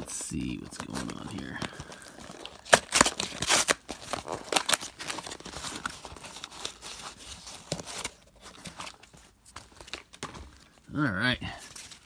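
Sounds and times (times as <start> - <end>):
cardboard tearing and rustling: 0.0 - 10.6
wrapping crinkling: 0.0 - 12.0.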